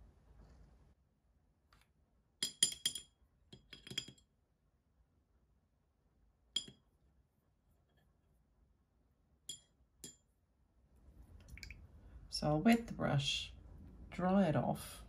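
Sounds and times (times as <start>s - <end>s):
pen clinking against ceramic dish: 2.4s - 4.2s, 6.6s - 6.8s, 9.5s - 10.2s.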